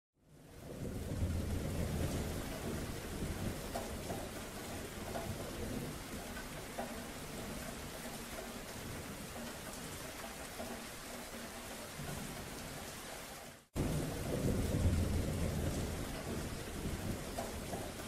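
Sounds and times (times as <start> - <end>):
rain falling: 0.2 - 18.0
low rumbling thunder: 0.6 - 6.3, 13.8 - 18.0.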